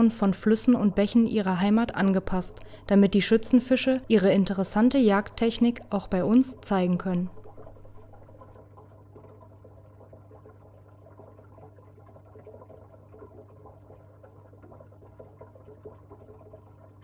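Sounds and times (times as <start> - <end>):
constant low hum: 0.0 - 8.8
water trickling in aquarium: 0.0 - 17.0.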